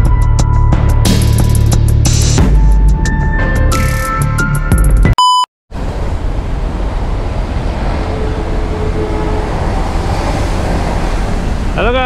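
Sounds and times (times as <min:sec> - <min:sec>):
short electronic beep: 0:05.2 - 0:05.5
distant road traffic: 0:05.7 - 0:12.0
wind buffeting microphone: 0:05.8 - 0:12.0.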